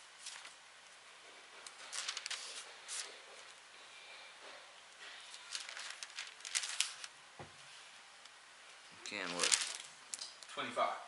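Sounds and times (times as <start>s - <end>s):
paper pages rustling: 0.2s - 0.6s, 1.6s - 3.6s, 5.3s - 7.1s, 9.2s - 10.2s.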